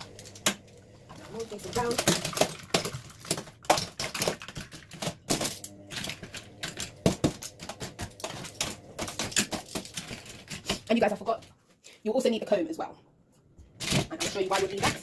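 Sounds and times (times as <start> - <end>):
brush handles clattering: 13.8 - 15.0.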